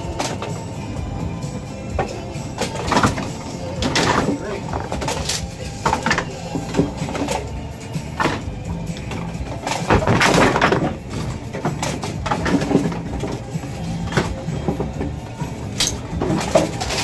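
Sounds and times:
bowling ball crashing into pins: 1.9s - 7.5s, 8.1s - 15.3s.

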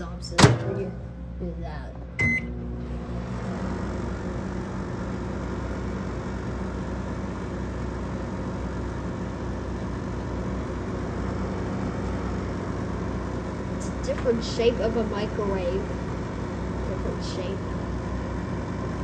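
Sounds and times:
microwave humming: 0.0s - 19.0s
microwave beep: 2.2s - 2.6s.

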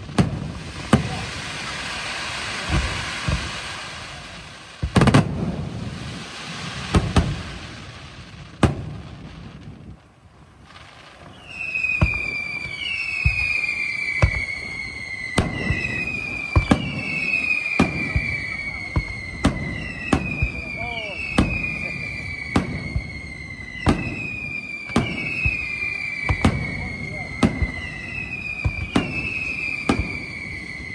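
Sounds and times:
falling firework whistles: 0.0s - 30.9s
firework shells bursting: 11.1s - 30.9s.

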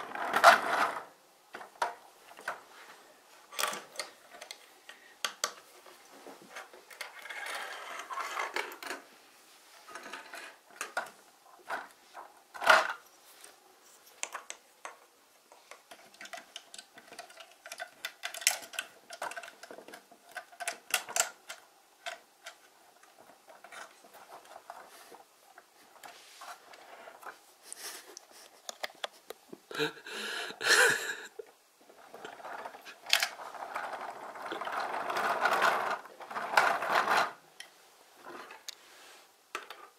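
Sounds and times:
plastic toy blocks clicking: 5.2s - 5.6s, 14.2s - 15.0s, 15.6s - 24.8s, 32.0s - 37.7s.

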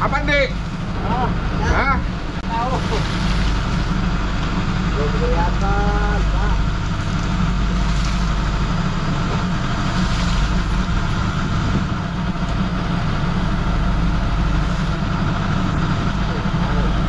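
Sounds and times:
boat engine droning: 0.0s - 17.0s.

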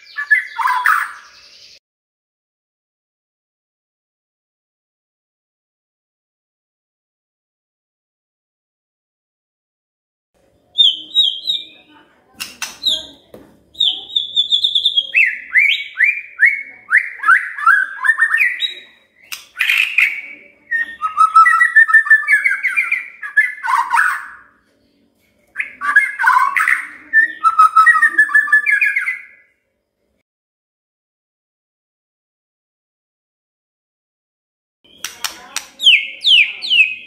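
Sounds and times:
songbird whistling: 0.0s - 1.8s, 10.8s - 11.9s, 12.6s - 13.2s, 13.8s - 24.5s, 25.6s - 29.5s, 34.9s - 37.0s.

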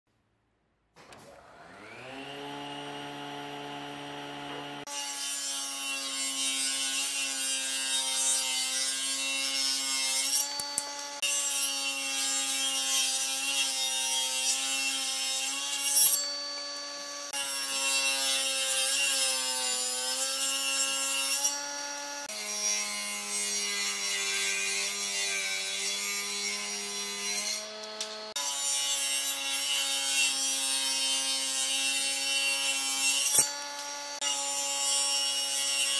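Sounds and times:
table saw motor whine: 1.2s - 5.2s, 9.1s - 22.6s
saw blade cutting wood: 1.2s - 35.9s.

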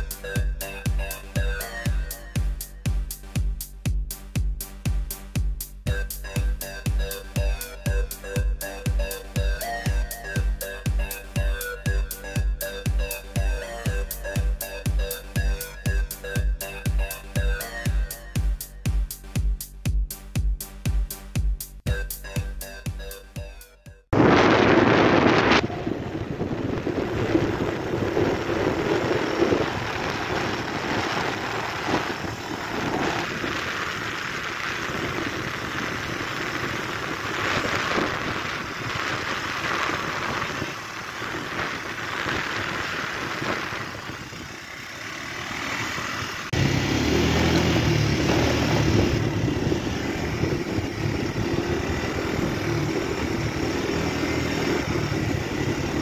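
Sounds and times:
road and wind noise: 0.0s - 20.0s, 24.1s - 56.0s
low engine drone: 24.2s - 56.0s.

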